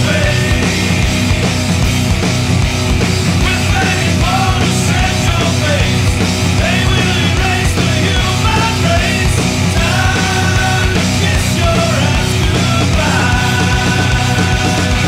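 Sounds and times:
person singing lead vocal: 0:00.0 - 0:01.4, 0:03.3 - 0:15.0
driving drum beat: 0:00.0 - 0:15.0
heavy guitars: 0:00.0 - 0:15.0
punk rock song: 0:00.0 - 0:15.0.

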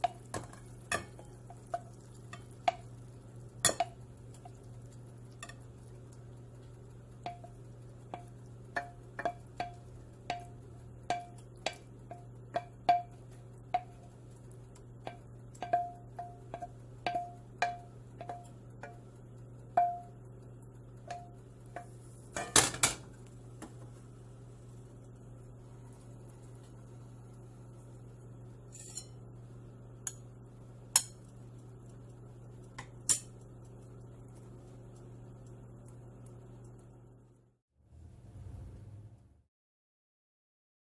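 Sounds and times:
pan clattering on burner: 0:00.0 - 0:02.9, 0:03.6 - 0:04.6, 0:21.1 - 0:23.8.

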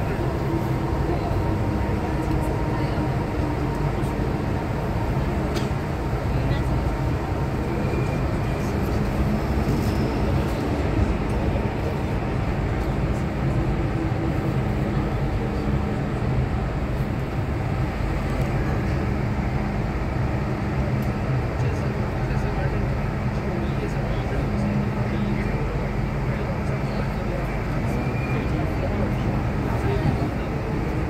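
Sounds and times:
metro train wheels rumbling: 0:00.0 - 0:31.0.

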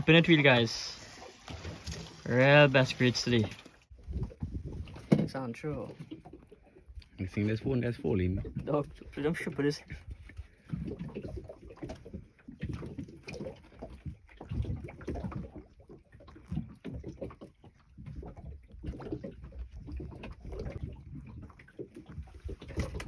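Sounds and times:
water lapping against boat hull: 0:00.0 - 0:23.0
wind gusts on microphone: 0:03.9 - 0:05.1.

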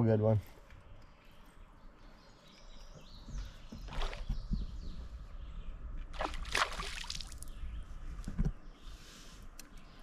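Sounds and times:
fish splashing at water surface: 0:06.2 - 0:07.5.

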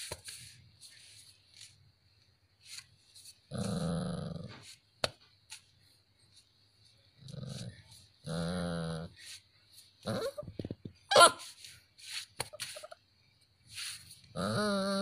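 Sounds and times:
puppy growling: 0:03.5 - 0:04.6, 0:07.2 - 0:09.2, 0:14.4 - 0:15.0.

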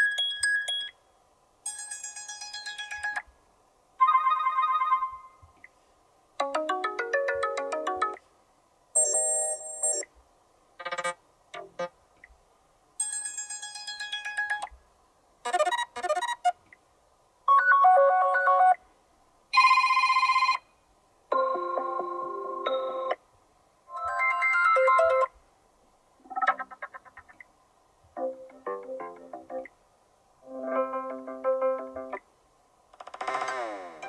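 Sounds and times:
short electronic ringtone melodies: 0:09.0 - 0:10.0.

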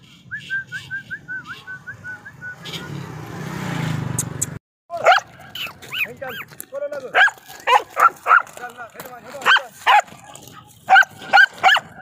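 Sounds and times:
passing motor vehicle: 0:00.3 - 0:06.9.

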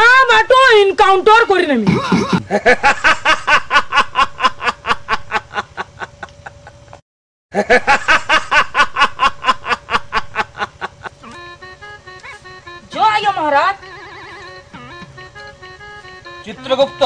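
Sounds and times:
man laughing loudly: 0:01.8 - 0:11.5.

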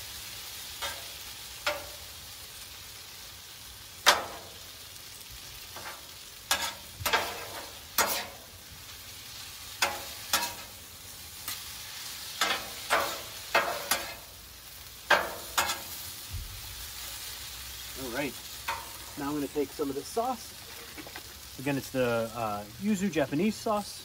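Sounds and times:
noodles sizzling on a griddle: 0:00.0 - 0:24.0
spatulas clacking and scraping metal: 0:00.8 - 0:02.0, 0:04.0 - 0:04.5, 0:05.8 - 0:08.4, 0:09.8 - 0:10.8, 0:12.4 - 0:14.2, 0:15.1 - 0:15.9, 0:18.6 - 0:19.4.

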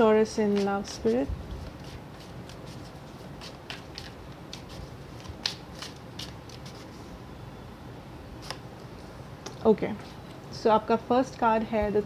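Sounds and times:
cards being shuffled: 0:00.5 - 0:07.0.

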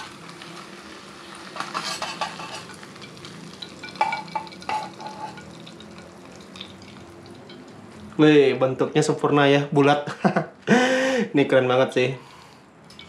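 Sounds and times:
egg sizzling in frying pan: 0:00.0 - 0:08.2
utensil scraping pan: 0:01.5 - 0:03.0, 0:04.1 - 0:05.5.

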